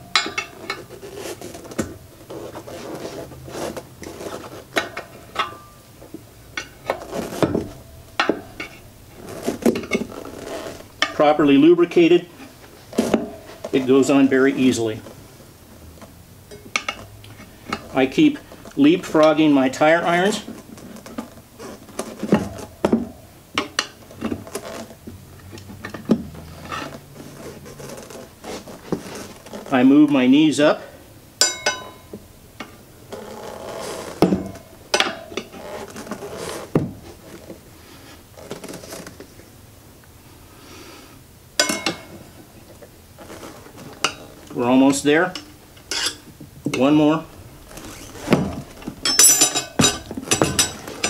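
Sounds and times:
tire irons clinking on metal rim: 0.0s - 15.2s, 16.4s - 29.8s, 31.4s - 37.4s, 41.6s - 51.0s
rubber tire rubbing: 0.0s - 16.0s, 19.8s - 23.1s, 23.8s - 29.9s, 32.9s - 39.5s, 42.0s - 51.0s
rubbing: 0.5s - 5.3s, 35.5s - 39.2s.

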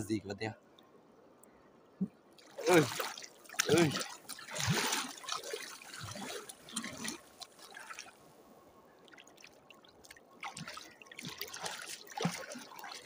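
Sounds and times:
hand paddling in water: 2.5s - 8.1s, 10.1s - 13.0s.

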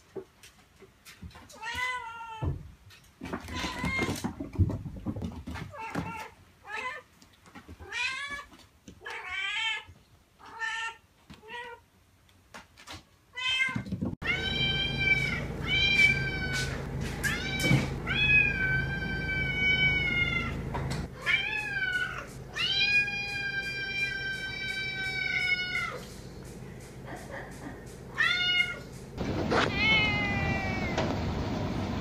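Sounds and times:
cats meowing: 13.4s - 26.1s, 28.1s - 31.2s
steady low hum: 14.2s - 32.0s
cat giving long loud meows: 29.6s - 31.1s.

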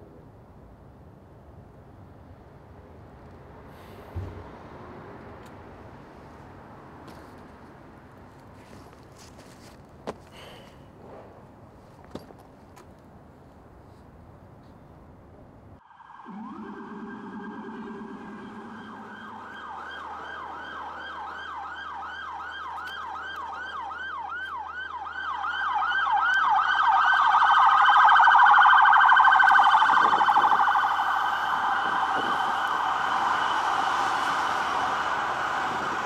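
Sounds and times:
emergency siren yelping: 15.8s - 36.0s.

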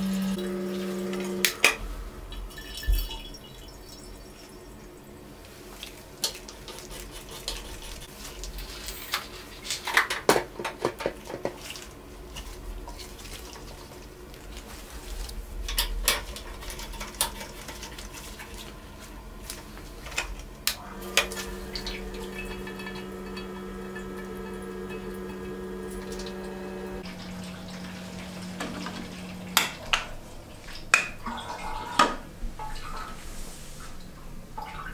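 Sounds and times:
pump humming: 0.0s - 5.0s, 20.7s - 33.1s.

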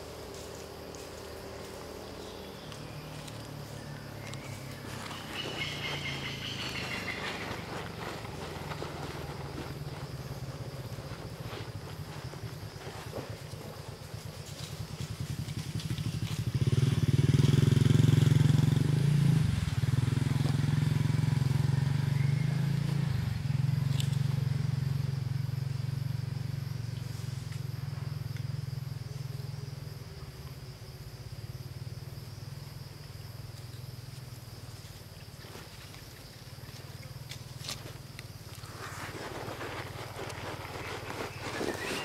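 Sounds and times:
vehicle engine passing: 0.0s - 10.2s, 14.8s - 26.8s.

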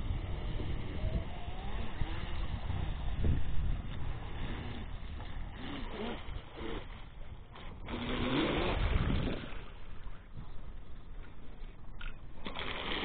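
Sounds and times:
wind noise: 0.0s - 12.4s
hissing water: 12.4s - 13.0s.

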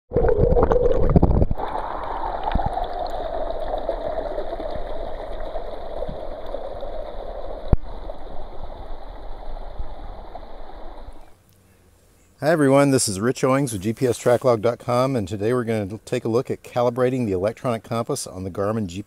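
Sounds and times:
creek splashing over stones: 1.1s - 11.3s.

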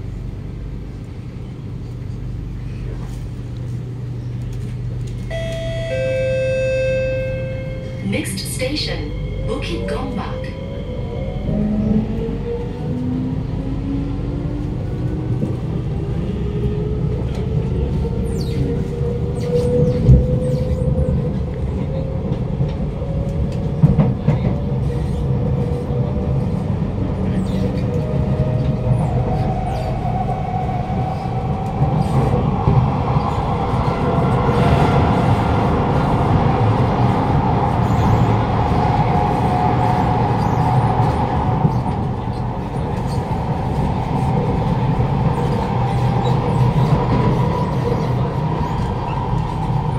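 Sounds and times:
wheel and rail rumble: 0.0s - 49.9s
train motor whine: 5.0s - 12.4s.

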